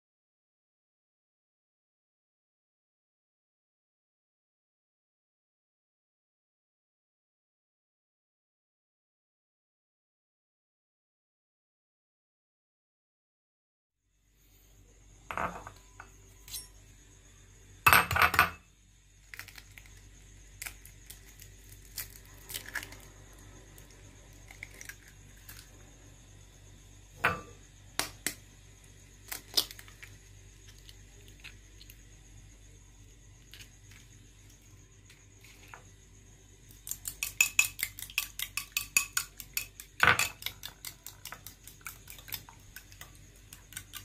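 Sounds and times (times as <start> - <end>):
eggs cracking on glass bowl: 19.3 - 20.0, 36.8 - 44.0.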